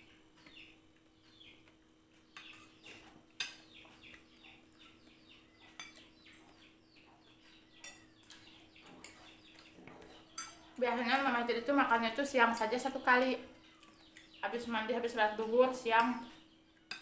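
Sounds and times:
bird chirping faintly: 0.0s - 16.9s
spoons clinking on dishes: 5.7s - 6.2s, 7.7s - 10.8s, 16.0s - 17.0s.

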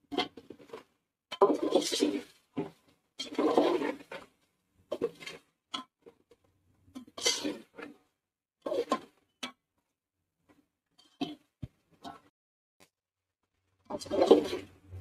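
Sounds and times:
metal spatula scraping metal pot: 1.3s - 2.4s, 3.2s - 5.5s, 7.0s - 8.0s, 13.9s - 15.0s.

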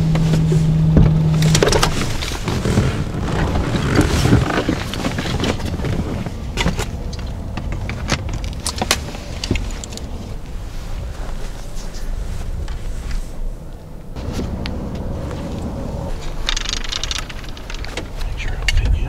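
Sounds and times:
continuous low rumble: 0.0s - 19.0s
clothing rustle: 0.1s - 18.4s
clicks and knocks of equipment: 1.4s - 10.1s, 16.2s - 18.9s.

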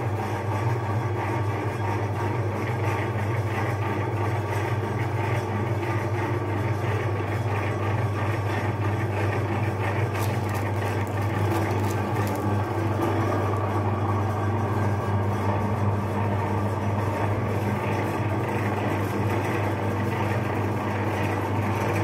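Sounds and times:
meat grinder motor hum: 0.0s - 22.0s
frozen bar crackling: 9.8s - 13.4s.

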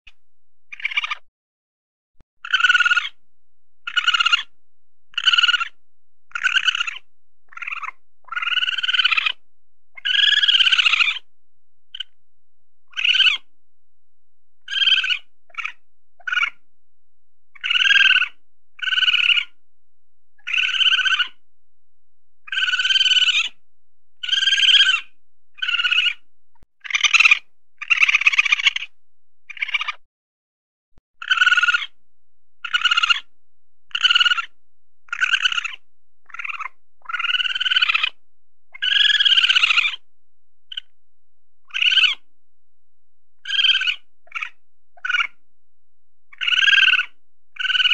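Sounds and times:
weasel squeaky calls: 0.7s - 1.2s, 2.4s - 3.2s, 3.9s - 4.5s, 5.1s - 9.4s, 10.0s - 11.3s, 11.9s - 12.2s, 12.9s - 13.5s, 14.7s - 16.6s, 17.6s - 19.6s, 20.4s - 21.4s, 22.5s - 23.6s, 24.2s - 26.2s, 26.8s - 28.9s, 29.5s - 30.0s, 31.2s - 32.0s, 32.6s - 33.3s, 33.9s - 40.0s, 40.7s - 40.9s, 41.6s - 42.2s, 43.4s - 45.4s, 46.3s - 47.9s.

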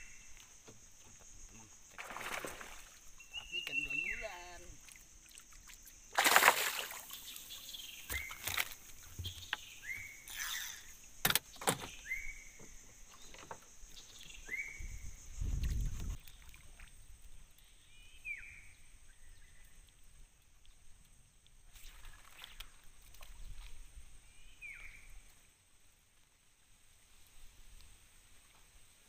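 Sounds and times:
knocks and splashes around boat: 0.4s - 10.2s, 11.2s - 17.6s.

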